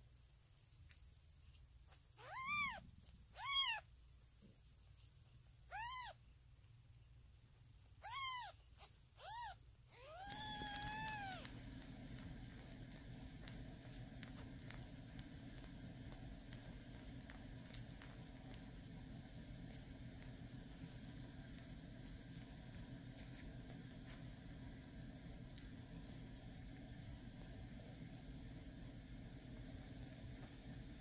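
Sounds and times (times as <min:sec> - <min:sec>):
kittens mewing: 0:02.1 - 0:03.9, 0:05.6 - 0:06.2, 0:08.0 - 0:11.6.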